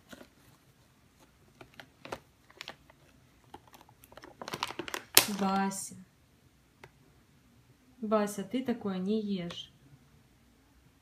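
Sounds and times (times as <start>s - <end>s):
plastic bag crinkling: 1.6s - 5.8s.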